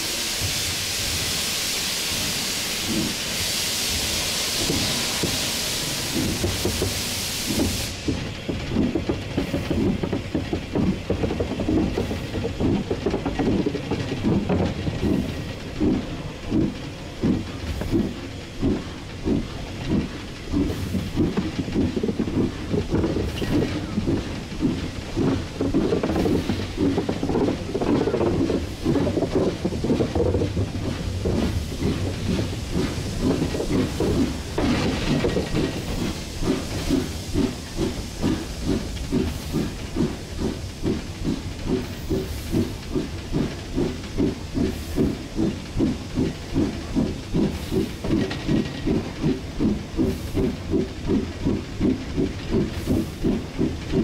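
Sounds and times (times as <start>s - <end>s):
steam hissing: 0.0s - 54.0s
steam locomotive chuffing: 0.0s - 54.0s.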